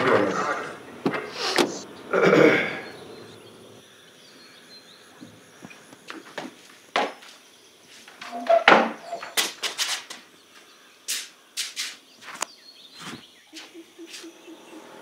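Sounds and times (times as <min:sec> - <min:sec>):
hard-soled shoes on concrete: 0:05.7 - 0:14.3.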